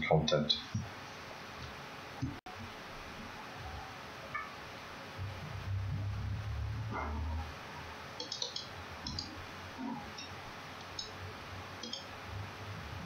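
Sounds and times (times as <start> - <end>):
low rumble: 5.2 - 7.6
computer mouse clicks: 8.2 - 9.3, 11.8 - 12.1.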